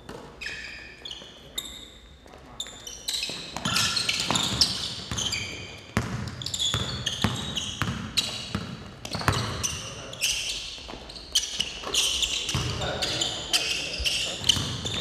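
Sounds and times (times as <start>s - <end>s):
sneakers squeaking on floor: 0.0s - 15.0s
basketball bouncing on wooden floor: 5.9s - 9.7s.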